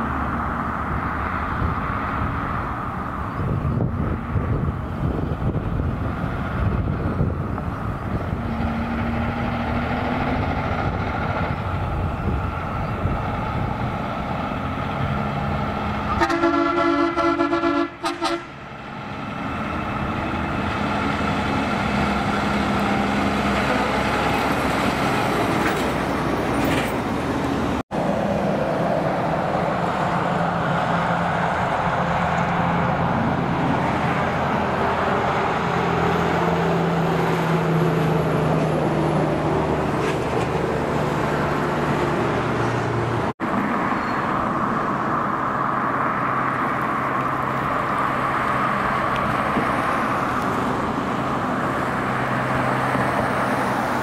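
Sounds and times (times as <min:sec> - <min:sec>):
trucks driving past: 0:00.0 - 0:54.0
truck air horn: 0:16.0 - 0:18.6.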